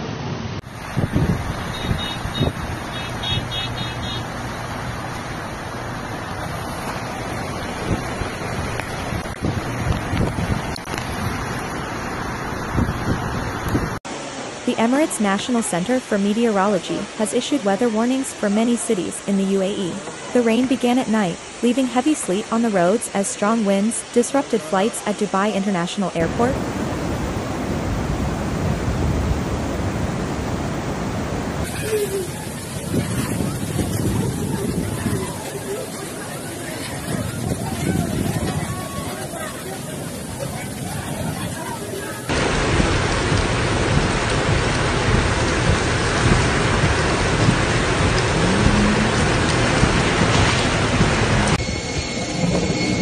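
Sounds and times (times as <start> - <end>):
floodwater rushing: 0.0 - 51.6
heavy rain pouring: 0.0 - 51.7
wavering tone: 51.6 - 53.0.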